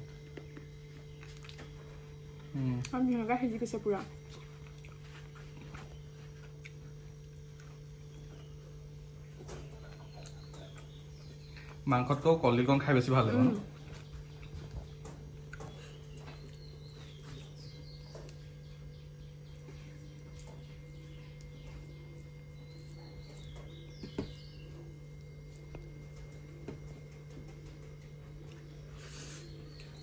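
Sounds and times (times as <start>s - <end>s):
low hum: 0.0s - 30.0s
bird chirps: 13.8s - 26.2s.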